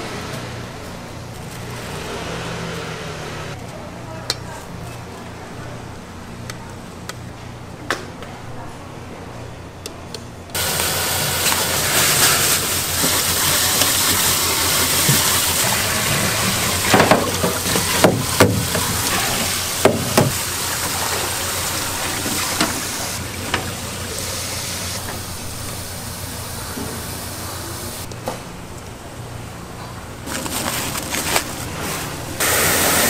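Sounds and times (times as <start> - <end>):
water running from tap: 10.6 - 25.0.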